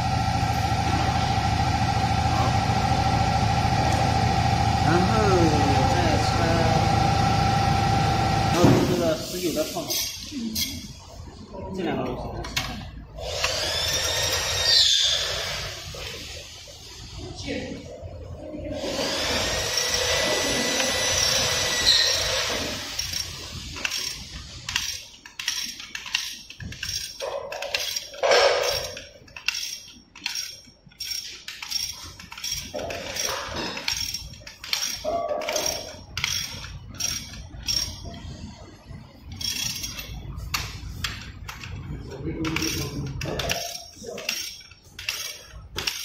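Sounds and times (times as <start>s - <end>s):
ratchet wrench clicking: 12.6s - 15.1s, 19.7s - 38.3s, 39.3s - 41.8s, 42.4s - 46.0s
metallic grinding with high ring: 19.1s - 38.5s, 39.2s - 40.4s
metal clinks: 22.9s - 38.4s, 39.2s - 41.8s.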